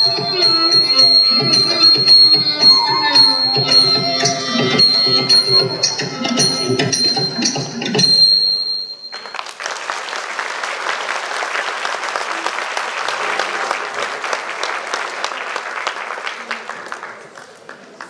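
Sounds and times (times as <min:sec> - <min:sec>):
dance accompaniment music: 0:00.0 - 0:08.4
audience applauding: 0:09.1 - 0:18.0.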